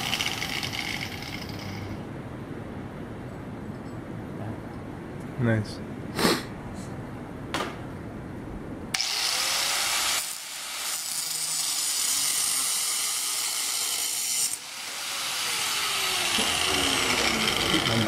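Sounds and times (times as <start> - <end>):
angle grinder grinding steel: 0.0 - 2.0, 9.0 - 18.0.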